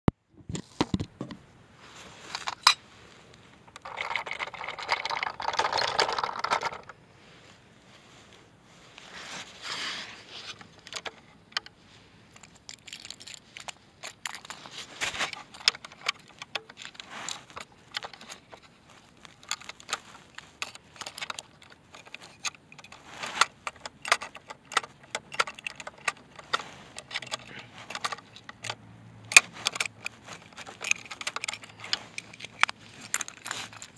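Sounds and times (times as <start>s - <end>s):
toy truck clicks and taps: 3.8s - 6.9s, 20.6s - 33.9s
toy scraping on asphalt: 8.9s - 33.9s.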